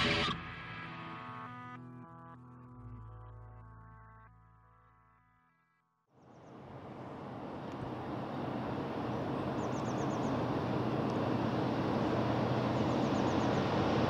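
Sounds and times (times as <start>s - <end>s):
outdoor background noise: 6.1s - 14.0s
diesel locomotive engine: 6.2s - 14.0s.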